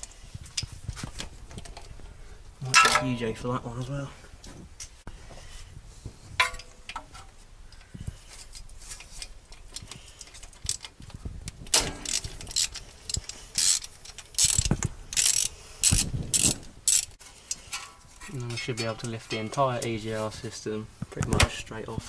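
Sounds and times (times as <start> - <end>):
socket ratchet clicking: 11.8 - 17.2.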